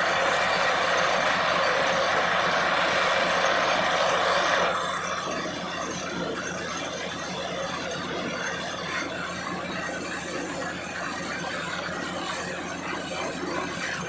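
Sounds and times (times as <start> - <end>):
drilling rig running: 0.0 - 14.0.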